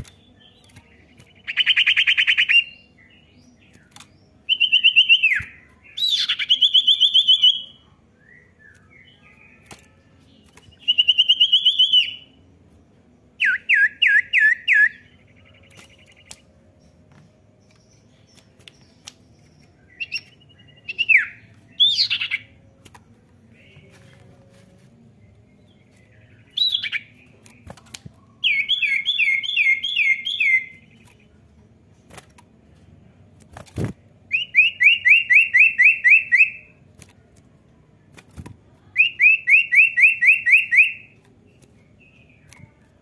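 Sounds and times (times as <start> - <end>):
bird singing buzzy trills: 0.0 - 31.5.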